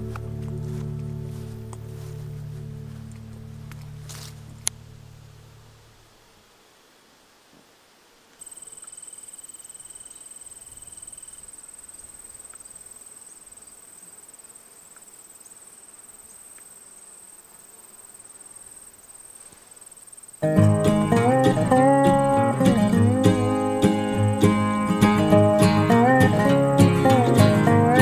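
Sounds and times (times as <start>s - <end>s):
high-pitched insect trill: 8.4s - 27.8s
fainter lower trill: 20.4s - 28.0s.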